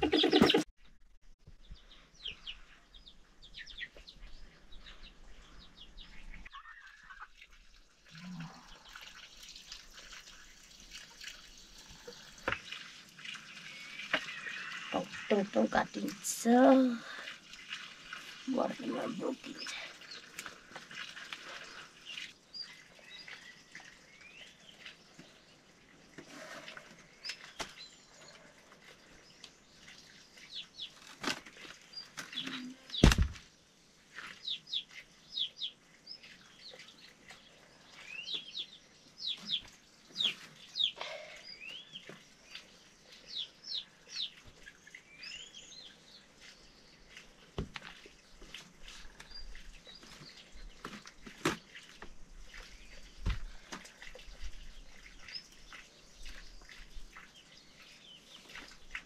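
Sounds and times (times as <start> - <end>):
small birds chirping: 0.0 - 0.6, 1.5 - 59.0
sharp knocks: 33.0 - 33.4.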